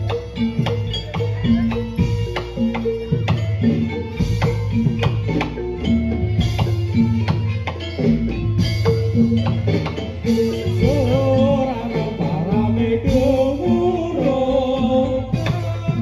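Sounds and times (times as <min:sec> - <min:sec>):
gamelan music: 0:00.0 - 0:16.0
person singing: 0:10.3 - 0:16.0.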